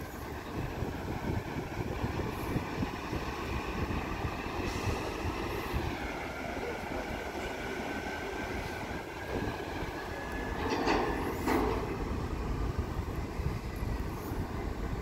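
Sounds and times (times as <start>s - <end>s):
ferry machinery drone: 0.0s - 15.0s
wind rumbling on microphone: 0.0s - 15.0s.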